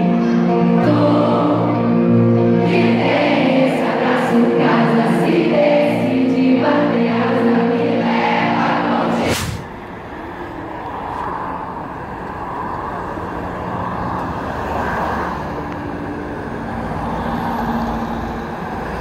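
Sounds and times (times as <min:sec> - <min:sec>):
person singing: 0:00.0 - 0:09.3.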